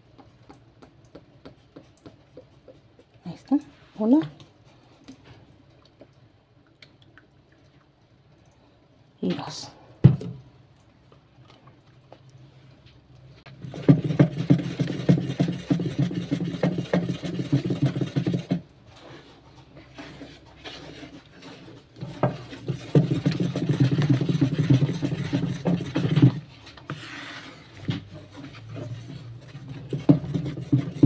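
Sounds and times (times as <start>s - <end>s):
liquid swishing: 13.4s - 31.0s
paddle scraping and knocking basin: 13.5s - 31.0s.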